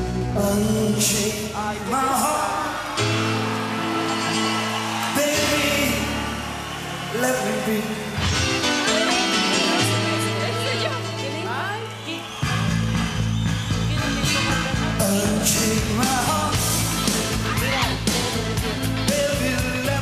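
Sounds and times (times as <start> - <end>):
person singing: 0.0 - 3.6, 5.1 - 6.4, 13.9 - 20.0.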